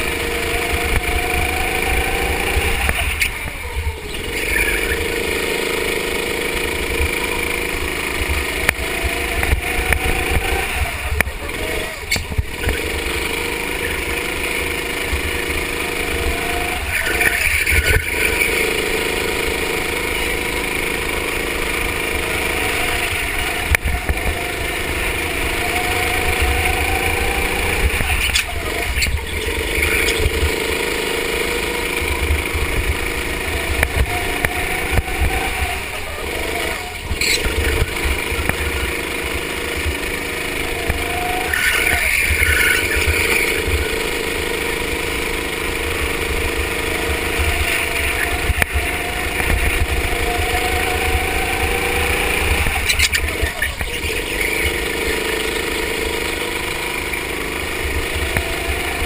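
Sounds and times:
go-kart engine revving: 0:00.0 - 0:59.0.

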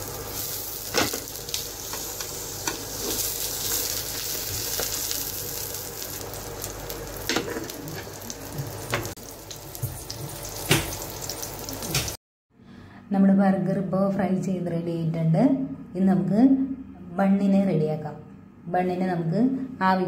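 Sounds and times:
burger patties sizzling in pan: 0:00.0 - 0:12.2.

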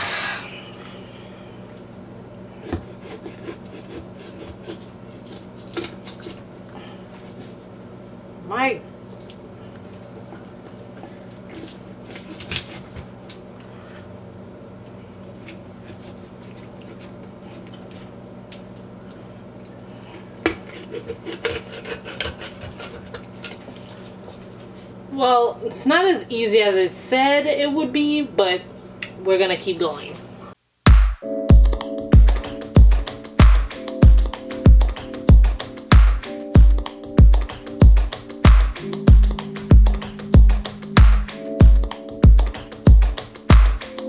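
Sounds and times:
low steady hum: 0:00.0 - 0:30.6
knife sawing through chicken bone: 0:02.6 - 0:06.4, 0:20.5 - 0:23.2.

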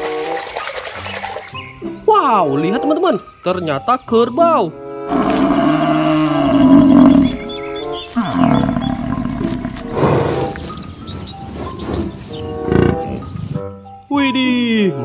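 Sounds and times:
light background music: 0:00.0 - 0:15.0
water buffalo lowing: 0:05.1 - 0:13.6.

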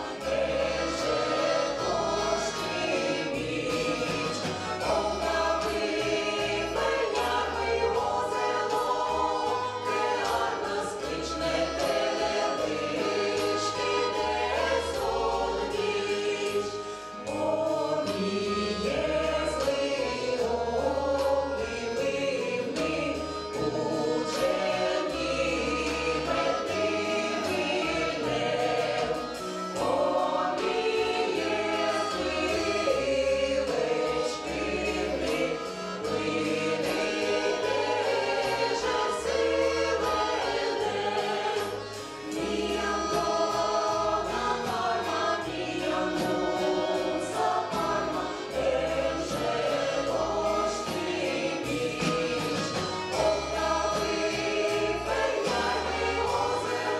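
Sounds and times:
bass line: 0:00.0 - 0:56.9
choir singing folk song: 0:00.0 - 0:56.9
drums: 0:00.0 - 0:56.9
keyboard: 0:00.0 - 0:56.9.

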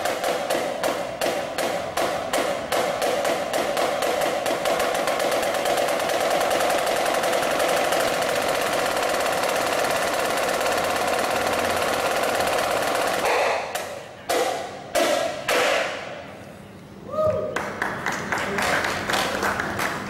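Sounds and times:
snare drum roll: 0:00.0 - 0:16.0
hard snare drum strikes: 0:00.0 - 0:16.2.

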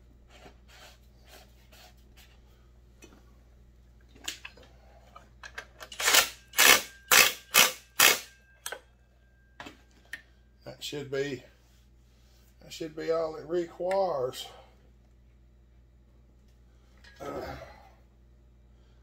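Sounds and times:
impact driver hammering: 0:06.0 - 0:08.3.

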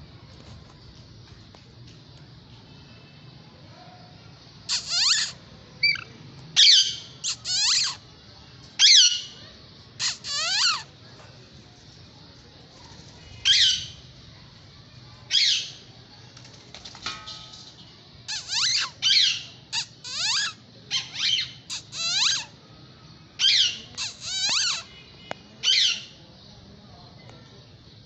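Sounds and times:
parakeets screeching: 0:04.7 - 0:08.0, 0:08.8 - 0:09.3, 0:10.0 - 0:10.9, 0:13.4 - 0:14.0, 0:18.3 - 0:22.5, 0:23.4 - 0:24.9, 0:25.6 - 0:26.1.

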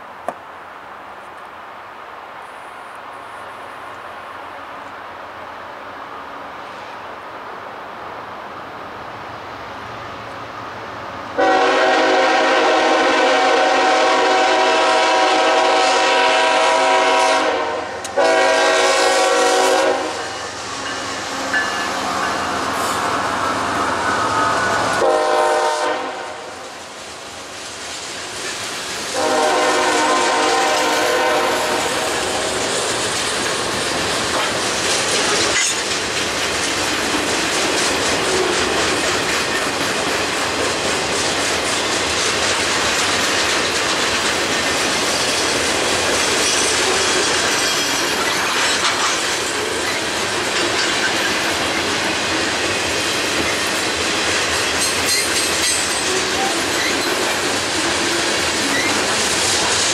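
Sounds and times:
train horn blasts: 0:11.4 - 0:23.3, 0:24.1 - 0:26.7, 0:29.1 - 0:32.5
train clattering on rails: 0:11.4 - 0:59.9.

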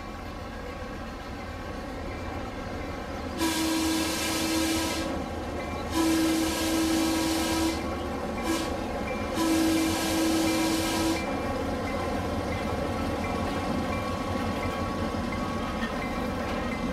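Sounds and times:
model locomotive horn blasts: 0:03.4 - 0:05.2, 0:05.9 - 0:11.4.

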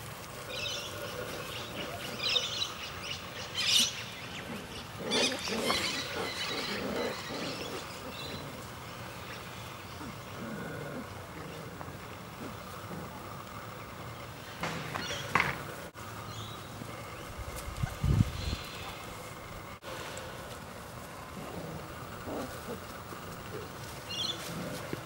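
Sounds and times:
puppies growling and yipping: 0:00.0 - 0:16.0, 0:21.1 - 0:25.0.

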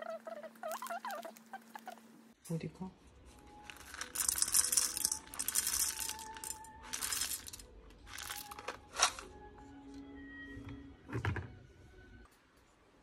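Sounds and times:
coffee beans rattling in metal bowl: 0:03.6 - 0:08.7.

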